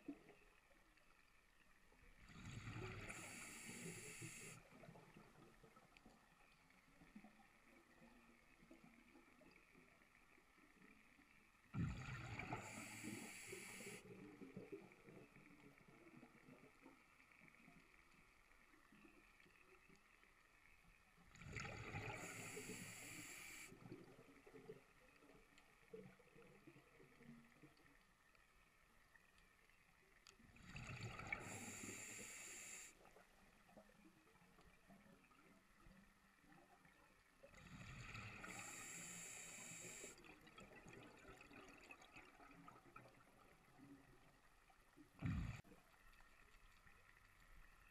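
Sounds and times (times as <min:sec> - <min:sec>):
underwater breath bubbles: 0:02.2 - 0:04.9, 0:11.8 - 0:15.0, 0:21.3 - 0:24.0, 0:30.5 - 0:33.1, 0:37.5 - 0:42.7, 0:45.2 - 0:45.8.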